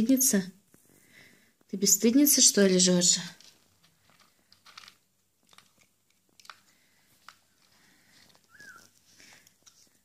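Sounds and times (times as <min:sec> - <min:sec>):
cat crunching kibble in metal bowl: 0:03.1 - 0:10.0.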